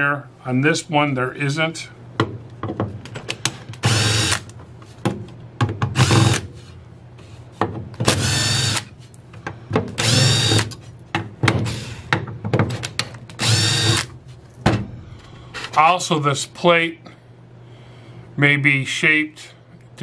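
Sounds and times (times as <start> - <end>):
cordless drill spinning: 3.8 - 4.5, 8.2 - 8.9, 10.0 - 10.7, 13.4 - 14.1.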